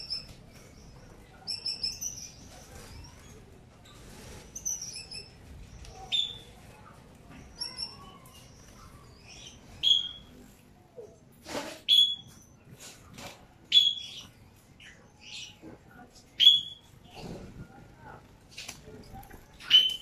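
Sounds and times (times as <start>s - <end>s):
finches and canaries chirping: 0.0s - 10.6s, 11.3s - 18.2s, 18.9s - 20.0s
rustles: 0.1s - 10.5s.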